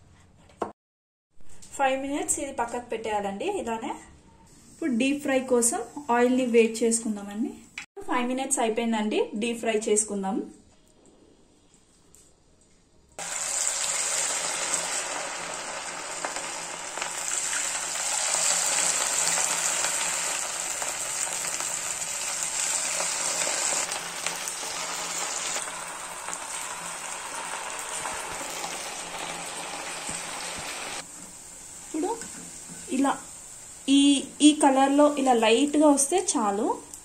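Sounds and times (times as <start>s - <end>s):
food sizzling in hot oil: 13.2s - 37.0s.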